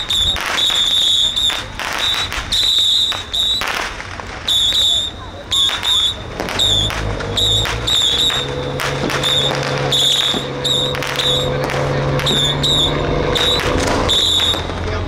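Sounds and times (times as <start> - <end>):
firecrackers cracking: 0.0 - 15.0
high whistling tones: 0.0 - 15.0.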